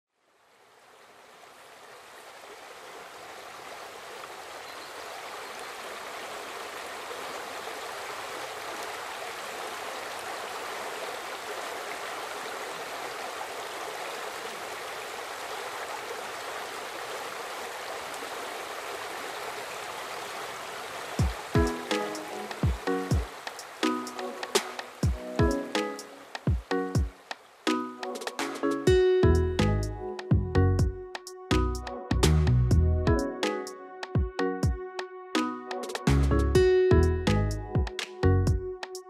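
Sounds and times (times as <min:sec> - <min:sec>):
stream water flowing: 0:00.1 - 0:30.3.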